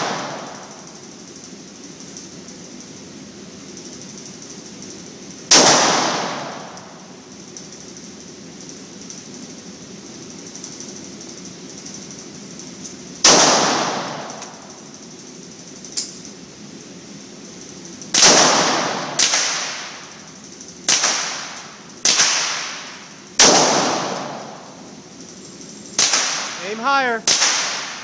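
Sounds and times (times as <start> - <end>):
pistol shots echoing indoors: 0.0 - 1.0, 3.7 - 7.1, 13.2 - 14.8, 18.1 - 20.2, 20.8 - 25.0, 26.0 - 26.6, 27.2 - 28.0.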